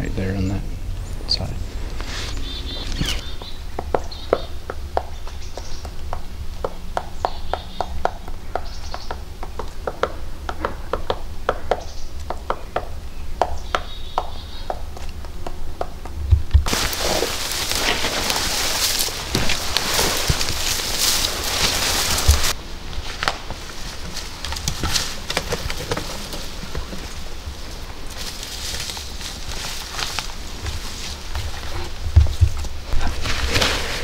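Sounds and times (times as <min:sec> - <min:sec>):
footsteps through dry grass: 0:01.6 - 0:04.2, 0:16.7 - 0:25.3, 0:26.1 - 0:34.0
woodpecker tapping bark: 0:02.6 - 0:16.2.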